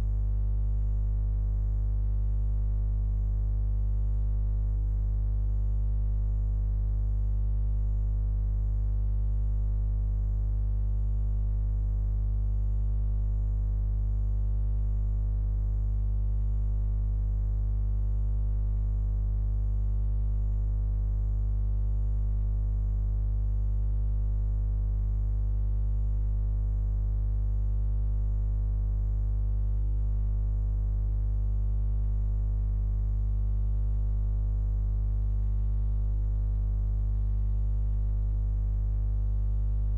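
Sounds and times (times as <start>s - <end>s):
low buzzing hum: 0.0s - 39.9s.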